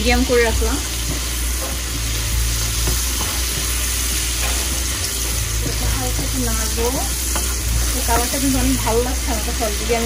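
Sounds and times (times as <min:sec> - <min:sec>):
prawns sizzling in a pan: 0:00.0 - 0:10.0.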